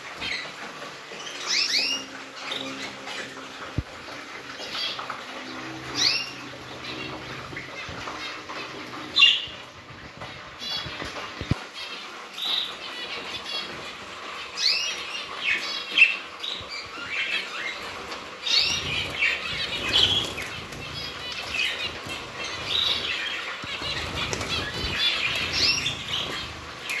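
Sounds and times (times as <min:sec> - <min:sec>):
finches calling: 0:04.5 - 0:09.7, 0:14.4 - 0:27.0
wings fluttering: 0:16.2 - 0:27.0.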